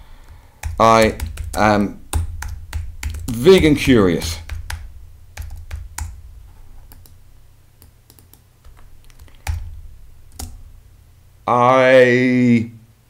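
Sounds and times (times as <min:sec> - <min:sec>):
keyboard and mouse clicks: 0:00.2 - 0:07.2, 0:07.8 - 0:10.7.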